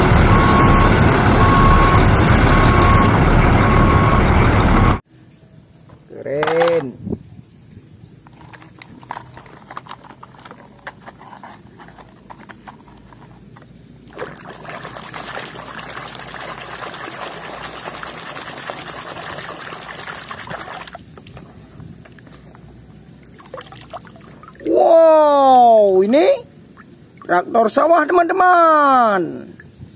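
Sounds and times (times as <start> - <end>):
water sloshing: 14.0 - 24.7
water drips and splashes: 14.1 - 24.8.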